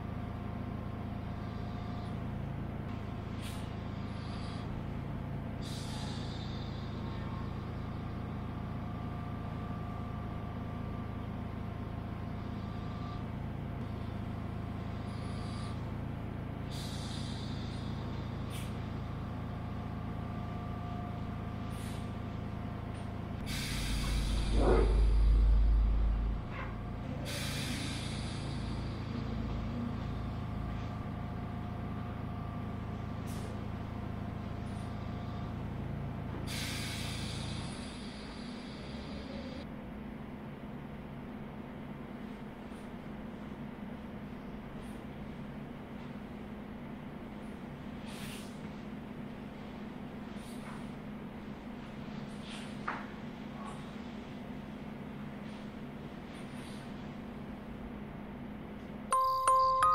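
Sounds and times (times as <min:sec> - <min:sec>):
steady mechanical hum: 0:00.0 - 0:59.9
loud deep rumble: 0:21.4 - 0:33.0.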